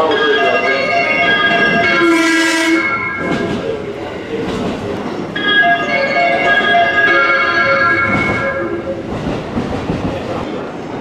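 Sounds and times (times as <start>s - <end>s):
train running past: 0.0s - 11.0s
train horn electronic melody: 1.8s - 3.6s.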